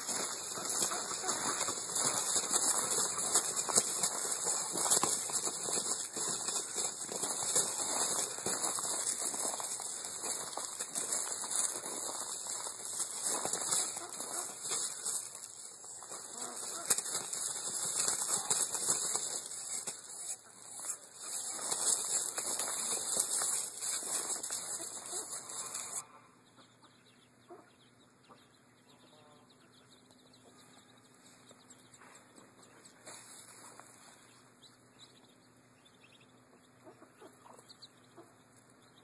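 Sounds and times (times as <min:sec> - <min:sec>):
scuffling in dry leaves: 0:00.0 - 0:26.0, 0:33.0 - 0:34.4
wings beating: 0:00.0 - 0:26.0.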